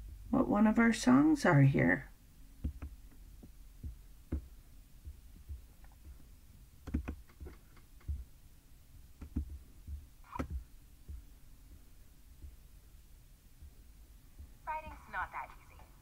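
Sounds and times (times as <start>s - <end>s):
faint low hum: 0.0s - 16.0s
computer mouse clicks: 2.6s - 3.0s, 6.8s - 8.2s, 10.3s - 10.6s
low thumps of handling: 2.6s - 14.6s.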